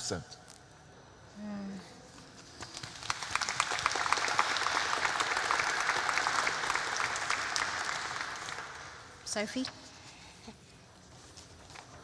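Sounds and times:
audience applauding: 2.6 - 9.2.

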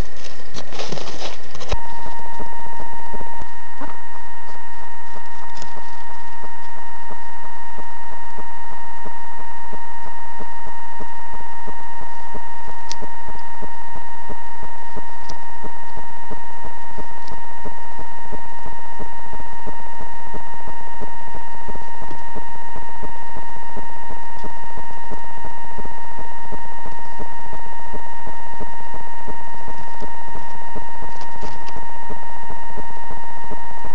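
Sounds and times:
faint rapid crackling: 0.0 - 7.6
high-pitched electronic tone: 0.0 - 33.9.

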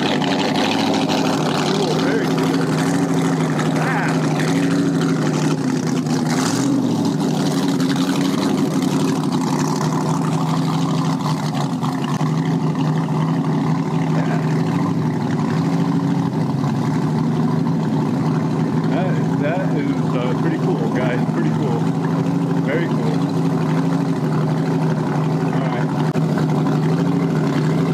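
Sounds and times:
motorboat engine running: 0.0 - 27.9.

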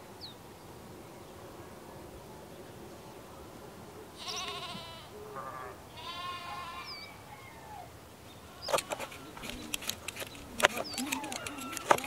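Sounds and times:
farm animal bleating: 4.2 - 7.2, 8.4 - 9.8, 10.5 - 12.0.

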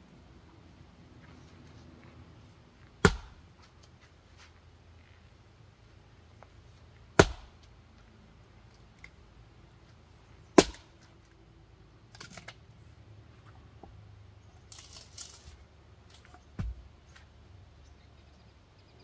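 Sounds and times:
axe chopping firewood: 3.0 - 3.7, 7.1 - 7.7, 10.5 - 11.1, 16.1 - 16.9.

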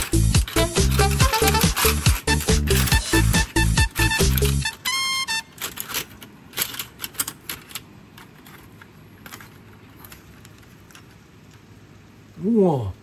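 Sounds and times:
chopsticks clicking on shells: 0.0 - 4.9.

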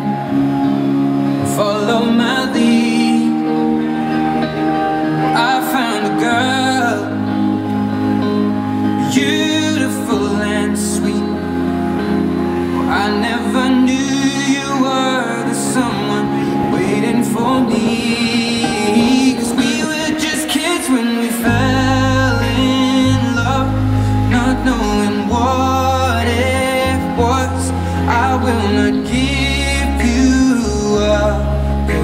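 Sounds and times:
held chords and bass notes: 0.0 - 32.0
person singing with vibrato: 0.0 - 32.0.

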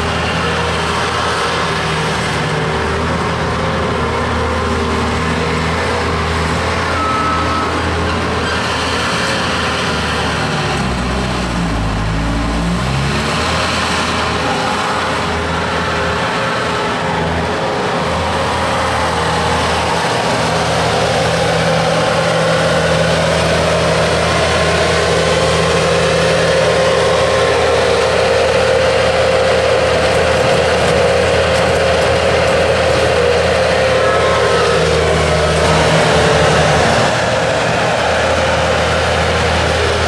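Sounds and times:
loader engine running: 0.0 - 40.0
high-pitched whine: 6.8 - 23.1, 33.4 - 40.0.

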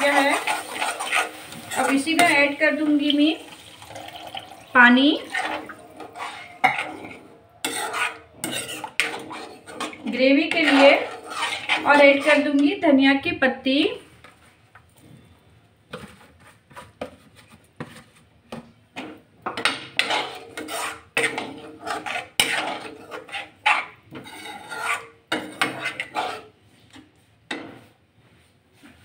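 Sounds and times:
ladle scraping a metal pot: 0.0 - 12.8, 19.6 - 27.8.

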